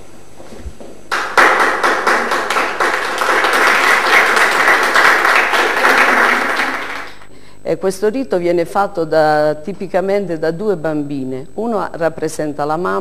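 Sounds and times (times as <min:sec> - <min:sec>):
audience applauding: 0:01.1 - 0:07.3.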